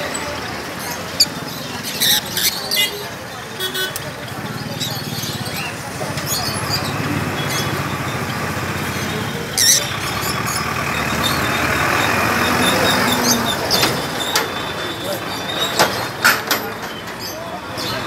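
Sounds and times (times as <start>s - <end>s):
street traffic: 0.0s - 18.0s
engine running close by: 4.1s - 18.0s.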